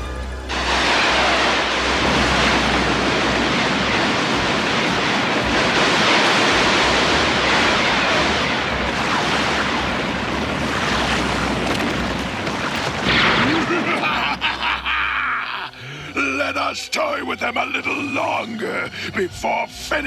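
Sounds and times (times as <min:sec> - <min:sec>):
loud rush of churning water: 0:00.5 - 0:14.2.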